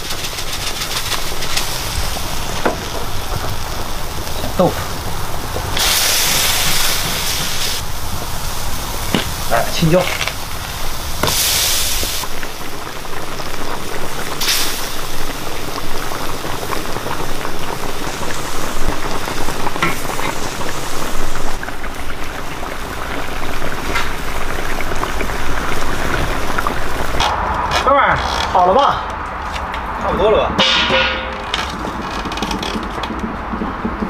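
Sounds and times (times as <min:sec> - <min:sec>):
stew bubbling in a wok: 0:00.0 - 0:27.6.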